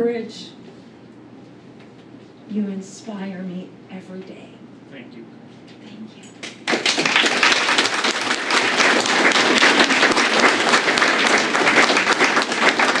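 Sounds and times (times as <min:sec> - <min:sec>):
audience applauding: 0:06.4 - 0:13.0.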